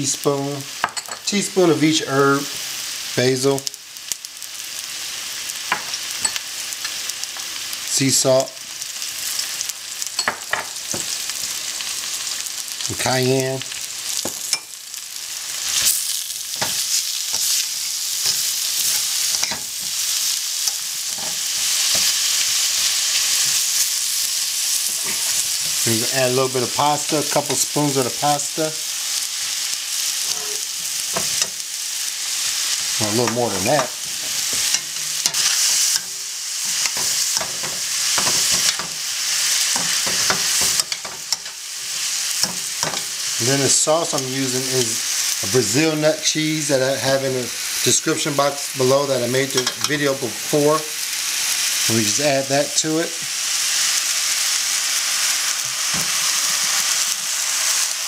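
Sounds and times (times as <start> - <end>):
vegetables sizzling in hot oil: 0.0 - 58.0
metal tongs scraping a pan: 5.7 - 7.6, 15.6 - 28.7, 30.1 - 44.3, 49.4 - 50.2.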